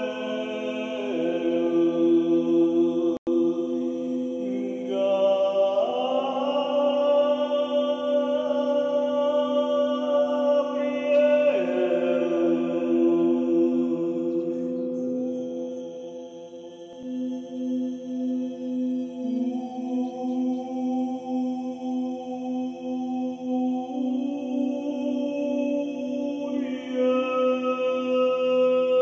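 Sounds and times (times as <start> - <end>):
person chanting held notes: 0.0 - 15.6
singing bowl drone: 0.0 - 29.0.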